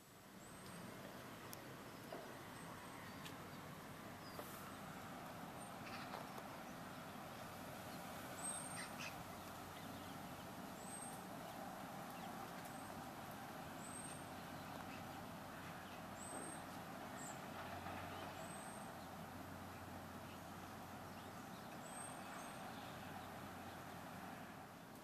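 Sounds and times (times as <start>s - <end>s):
distant road traffic hum: 0.0s - 25.0s
small bird chirping: 7.9s - 12.9s.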